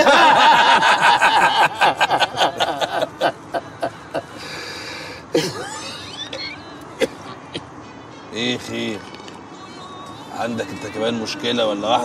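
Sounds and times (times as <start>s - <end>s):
man laughing: 0.0s - 4.3s, 5.4s - 6.5s.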